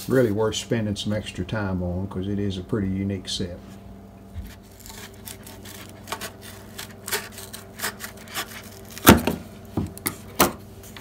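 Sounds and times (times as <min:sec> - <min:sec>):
scissors cutting cardboard tube: 0:04.5 - 0:10.2.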